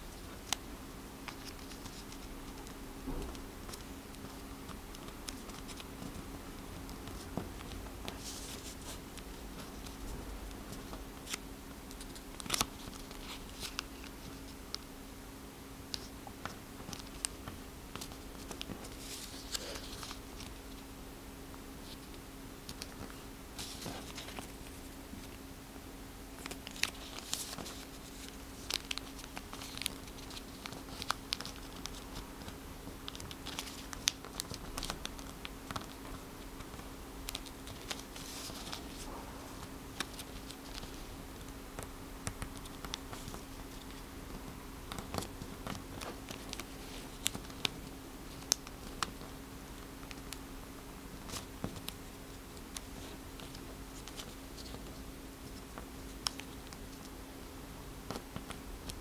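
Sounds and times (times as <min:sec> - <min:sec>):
steady low hum: 0:00.0 - 0:59.0
paper rustling and crinkling: 0:01.2 - 0:06.2, 0:06.8 - 0:14.8, 0:15.9 - 0:20.9, 0:21.8 - 0:25.4, 0:26.4 - 0:50.4, 0:51.1 - 0:57.1
paper creasing clicks: 0:26.4 - 0:39.0.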